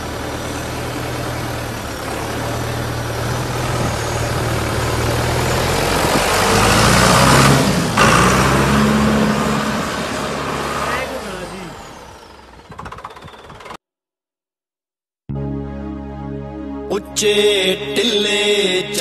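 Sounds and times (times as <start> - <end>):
tractor diesel engine revving: 0.0 - 13.8.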